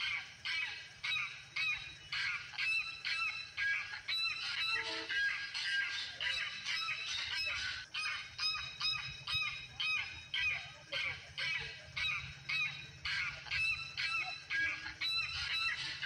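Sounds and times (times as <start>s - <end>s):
goose-like honking calls: 4.6s - 5.3s.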